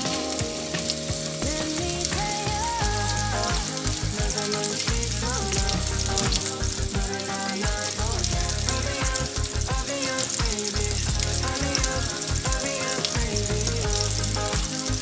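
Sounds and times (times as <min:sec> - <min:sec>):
pop song with bass beat: 0:00.0 - 0:15.0.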